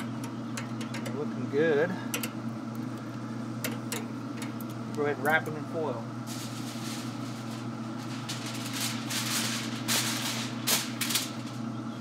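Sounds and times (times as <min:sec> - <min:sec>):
low mechanical hum: 0:00.0 - 0:12.0
aluminium foil crinkling: 0:06.2 - 0:11.7.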